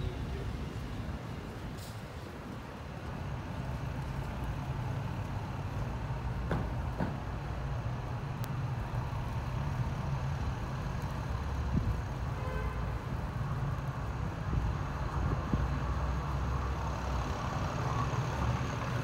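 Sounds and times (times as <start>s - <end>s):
street traffic: 0.0s - 19.0s
vehicle engine humming: 0.0s - 19.0s
faint clicks: 8.4s - 8.6s.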